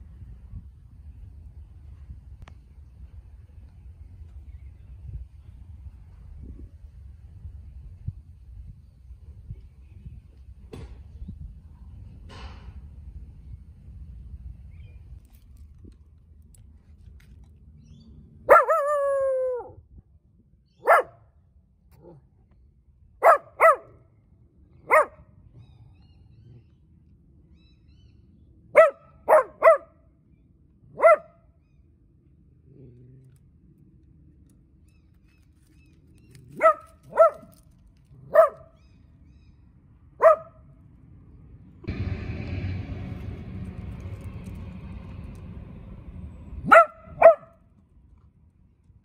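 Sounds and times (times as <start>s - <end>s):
low background rumble: 0.0s - 49.0s
dog barking: 18.5s - 19.7s, 20.8s - 21.2s, 23.2s - 24.0s, 24.8s - 25.3s, 28.7s - 30.0s, 30.9s - 31.4s, 36.5s - 37.6s, 38.2s - 38.7s, 40.2s - 40.6s, 46.6s - 47.5s.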